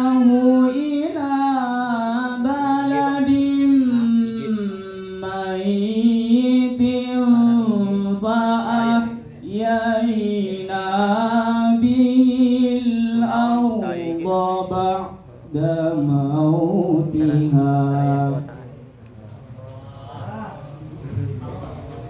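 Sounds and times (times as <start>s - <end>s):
man reciting melodically: 0.0s - 19.0s.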